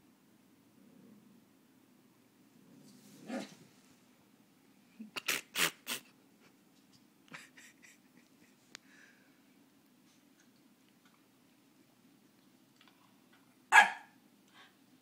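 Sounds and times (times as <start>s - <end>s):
dogs barking: 13.7s - 14.2s.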